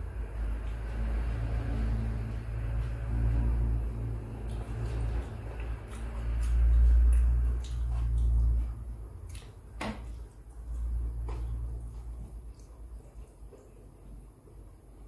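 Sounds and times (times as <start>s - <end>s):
low background rumble: 0.0s - 15.0s
chewing and mouth clicks: 2.2s - 14.2s.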